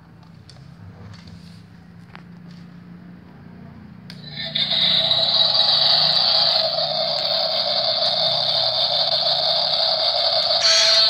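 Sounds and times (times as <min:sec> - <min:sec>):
toy excavator whirring: 0:04.1 - 0:11.0.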